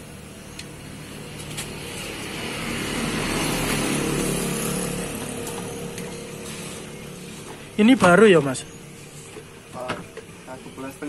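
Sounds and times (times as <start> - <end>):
vehicle passing by: 0.0 - 9.3.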